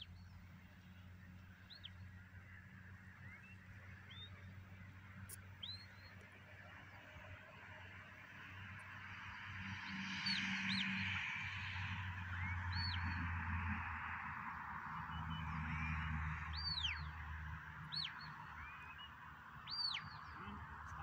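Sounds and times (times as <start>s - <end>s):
birds whistled calls: 1.6s - 2.0s, 3.2s - 4.5s, 5.3s - 6.2s, 12.3s - 13.2s, 16.5s - 17.2s, 17.8s - 20.6s.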